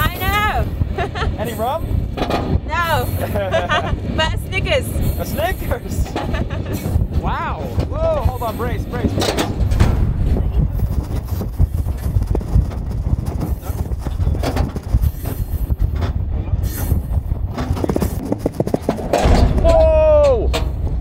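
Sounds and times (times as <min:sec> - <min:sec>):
freight wagons rumbling: 0:00.0 - 0:21.0
wagons clanking and knocking: 0:00.0 - 0:21.0.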